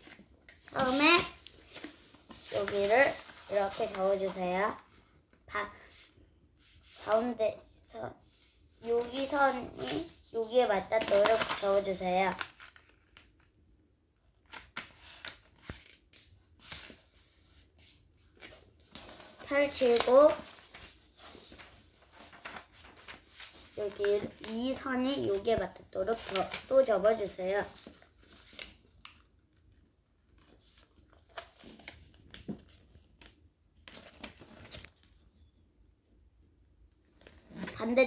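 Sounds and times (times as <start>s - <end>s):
paper rustling and tapping: 0.0s - 4.5s, 8.8s - 13.5s, 14.4s - 17.0s, 18.3s - 29.6s, 30.4s - 35.1s.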